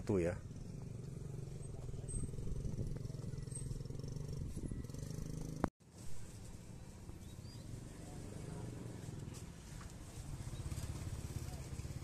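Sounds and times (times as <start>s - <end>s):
vehicle engine hum: 7.7s - 12.0s.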